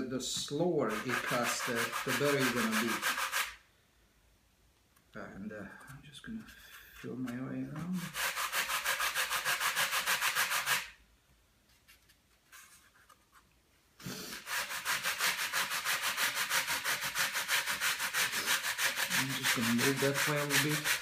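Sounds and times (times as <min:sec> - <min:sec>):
sanding block scratching: 0:00.4 - 0:03.6, 0:07.0 - 0:11.0, 0:14.1 - 0:21.0.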